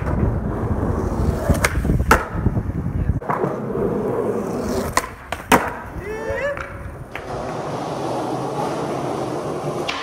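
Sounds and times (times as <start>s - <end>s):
skateboard wheels rolling on concrete: 0.0s - 10.0s
skateboard clacks: 1.4s - 2.5s, 4.8s - 10.0s.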